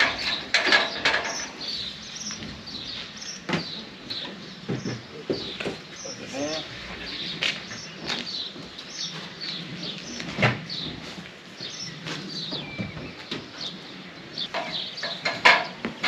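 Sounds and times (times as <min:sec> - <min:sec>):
knocks and clanks of ladder: 0:00.0 - 0:01.7, 0:02.4 - 0:06.0, 0:14.4 - 0:16.0
small birds chirping: 0:00.0 - 0:16.0.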